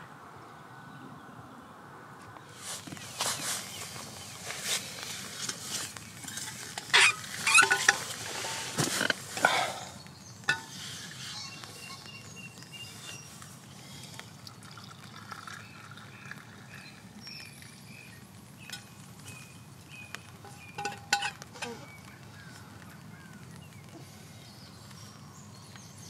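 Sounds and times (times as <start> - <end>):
faint birds chirping: 0.0 - 26.0
scrapes squeaks and knocks: 6.3 - 9.2, 10.5 - 12.0.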